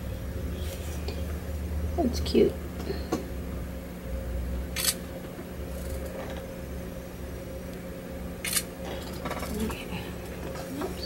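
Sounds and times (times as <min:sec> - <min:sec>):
faint steady hum: 0:00.0 - 0:11.0
phone camera shutter: 0:04.8 - 0:05.0, 0:08.4 - 0:08.7.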